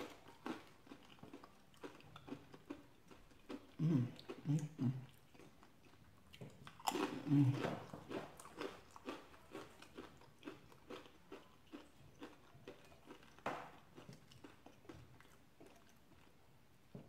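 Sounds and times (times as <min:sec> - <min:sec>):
crunchy chewing: 0:00.0 - 0:16.5.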